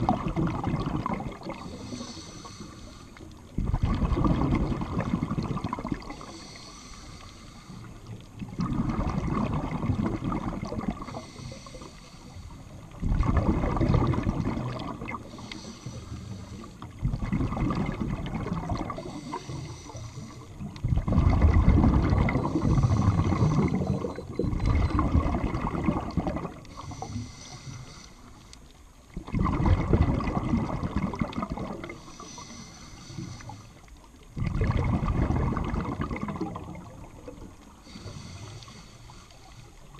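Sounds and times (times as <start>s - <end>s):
bubbling exhalation underwater: 0.0s - 1.7s, 3.6s - 6.2s, 8.4s - 11.1s, 13.0s - 15.3s, 17.0s - 19.2s, 20.8s - 26.6s, 29.2s - 32.0s, 34.4s - 37.4s
regulator inhale hiss: 1.7s - 3.4s, 6.1s - 8.2s, 11.0s - 12.9s, 15.2s - 17.0s, 19.0s - 20.6s, 22.4s - 23.8s, 26.7s - 28.7s, 31.9s - 34.0s, 37.8s - 39.9s.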